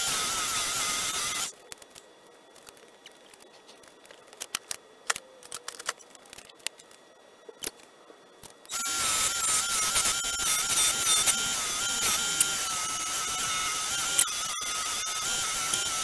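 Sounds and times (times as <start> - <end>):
wood lathe whining: 0.0 - 1.5, 8.7 - 16.0.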